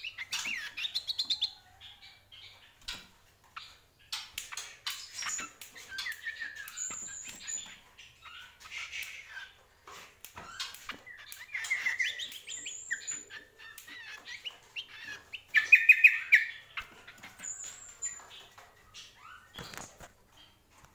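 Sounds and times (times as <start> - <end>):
caged bird singing: 0.0 - 20.6
bird whistles: 15.6 - 16.6.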